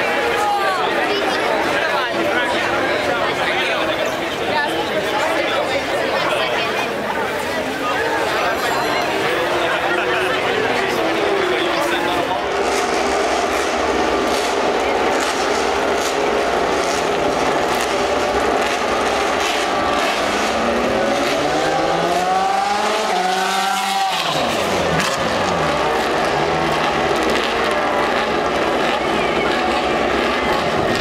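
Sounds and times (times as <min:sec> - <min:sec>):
trackside crowd noise: 0:00.0 - 0:31.0
vehicle engine passing by: 0:09.0 - 0:31.0.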